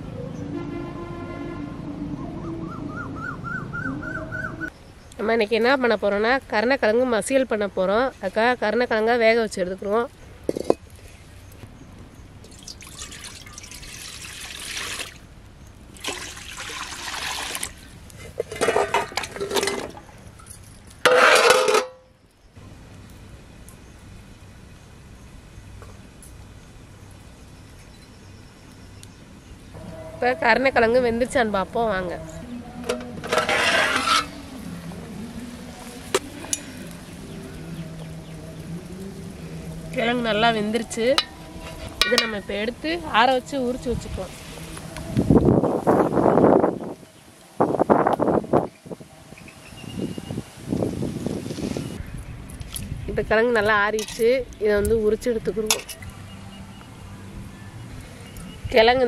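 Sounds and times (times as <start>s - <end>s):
water pouring and sloshing: 12.4s - 15.3s, 15.9s - 20.0s
metal pot clinks: 21.1s - 22.0s, 42.0s - 42.5s.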